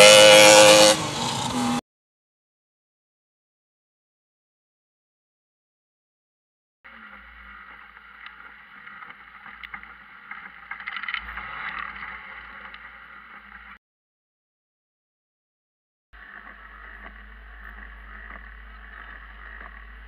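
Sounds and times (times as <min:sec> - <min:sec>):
buggy engine and driving noise: 0:00.0 - 0:01.8, 0:06.9 - 0:13.8, 0:16.2 - 0:20.0.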